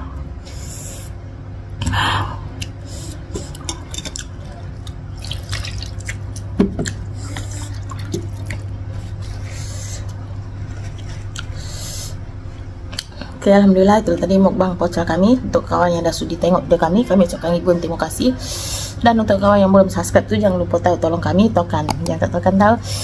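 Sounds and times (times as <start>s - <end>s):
steady low hum: 0.0s - 23.0s
clicks against dishes: 3.4s - 4.3s.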